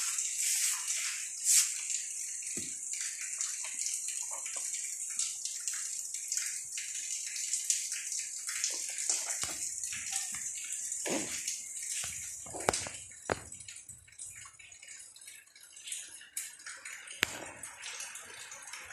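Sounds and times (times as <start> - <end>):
steady hiss: 0.0 - 3.3.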